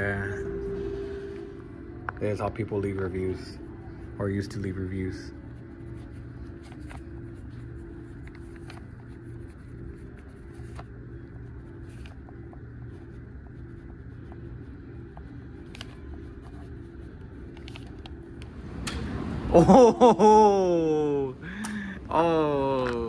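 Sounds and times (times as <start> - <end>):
steady low hum: 0.0 - 23.0
pen scratching on paper: 5.5 - 18.0.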